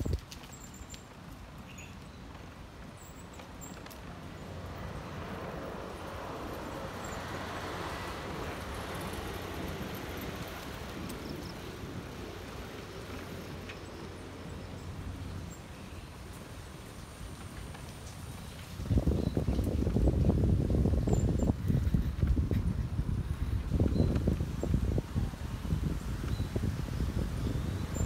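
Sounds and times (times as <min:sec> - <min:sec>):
wind on microphone: 0:00.0 - 0:00.3, 0:18.3 - 0:28.0
bicycle tyres rolling on asphalt: 0:00.0 - 0:28.0.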